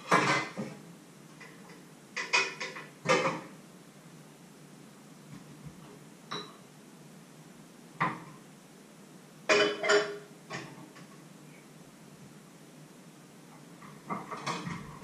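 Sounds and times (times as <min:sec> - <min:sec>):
metal kitchenware clattering: 0:00.0 - 0:00.7, 0:02.2 - 0:03.5, 0:09.5 - 0:10.8, 0:14.0 - 0:15.0.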